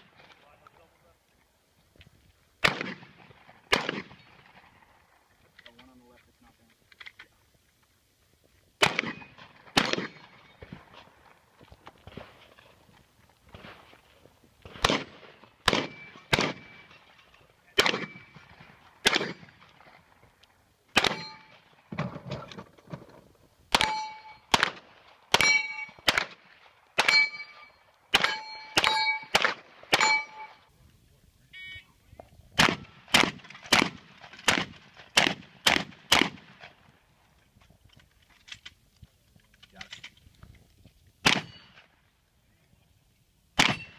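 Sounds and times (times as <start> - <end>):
gunshots: 2.6 - 4.8, 8.8 - 11.1, 14.6 - 17.0, 17.7 - 19.9, 20.9 - 22.4, 23.7 - 30.6, 32.6 - 36.8, 41.2 - 41.8, 43.6 - 43.9
ring of struck steel targets: 15.7 - 18.5, 21.0 - 21.7, 23.7 - 24.6, 25.3 - 26.1, 27.0 - 30.7, 41.3 - 41.9, 43.6 - 43.9.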